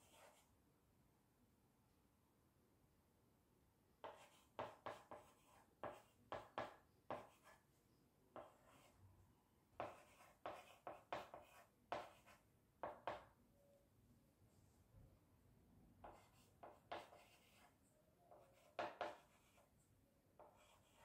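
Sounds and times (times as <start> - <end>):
chalk writing on blackboard: 0.0 - 0.5, 4.0 - 7.6, 8.4 - 9.0, 9.8 - 13.3, 16.0 - 19.8, 20.4 - 21.0.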